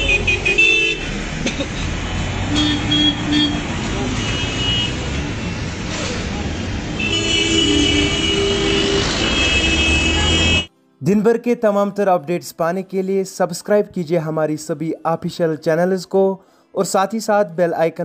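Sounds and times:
vehicle horns honking: 0.0s - 1.2s, 2.1s - 5.6s, 6.9s - 10.7s
rumble of engines and road noise: 0.0s - 10.7s.

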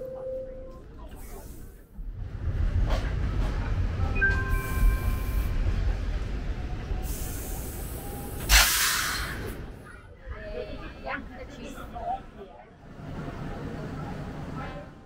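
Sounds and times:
subway train rumbling: 0.0s - 15.0s
sharp burst of hiss: 8.5s - 9.4s.

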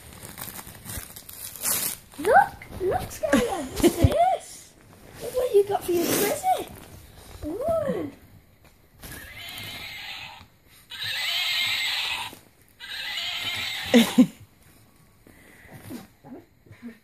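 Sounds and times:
wrapping paper rustling and tearing: 0.0s - 4.0s.

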